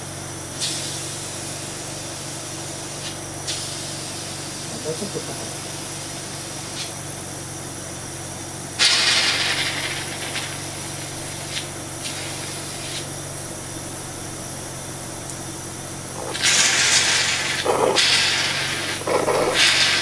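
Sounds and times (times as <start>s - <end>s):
equipment humming: 0.0s - 20.0s
burst of hissing air: 0.6s - 2.3s, 2.9s - 4.6s, 8.8s - 13.2s, 16.0s - 20.0s.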